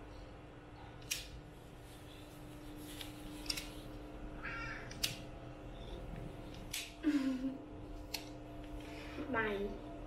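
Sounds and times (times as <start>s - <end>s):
cat meowing: 4.4s - 5.0s
pet nail clippers snipping: 4.9s - 5.2s.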